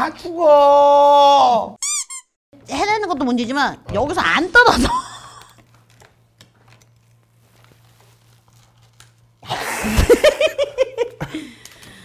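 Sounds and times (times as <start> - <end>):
woman laughing: 4.6 - 5.6, 9.5 - 11.5.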